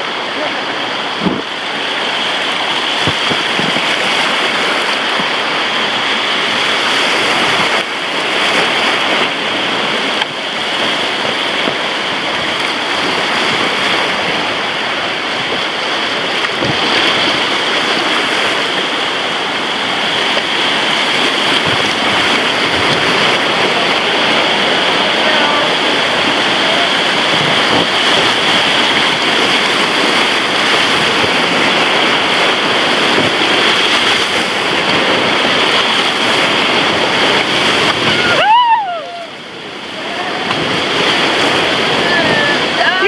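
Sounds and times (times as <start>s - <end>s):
whitewater rapids rushing: 0.0s - 43.0s.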